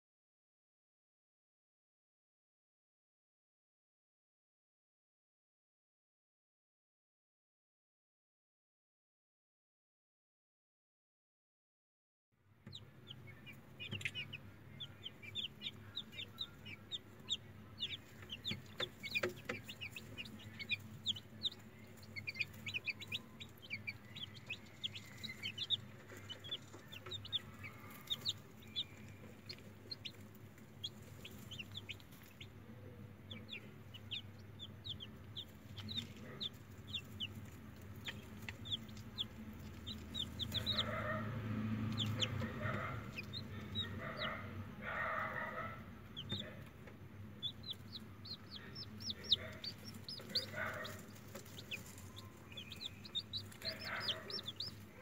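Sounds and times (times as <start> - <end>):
chicks peeping: 12.6 - 55.0
steady low hum: 12.8 - 44.8.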